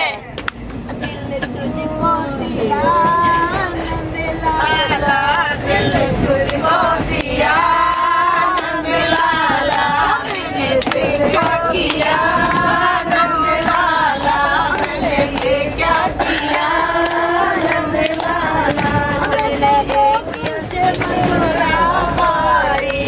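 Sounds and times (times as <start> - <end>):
women singing together: 0.9 - 23.0
hands clapping in time: 6.5 - 23.0.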